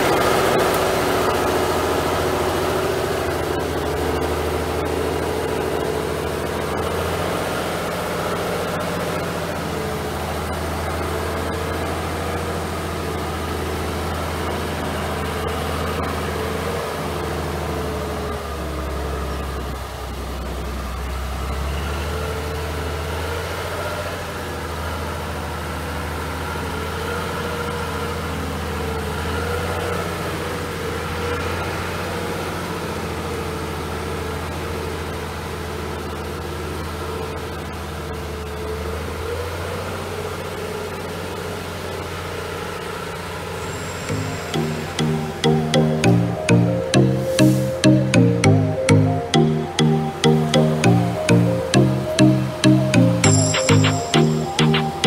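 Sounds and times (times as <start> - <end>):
diesel truck engine at low revs: 0.0 - 43.6
electronic music with steady beat: 44.1 - 55.0.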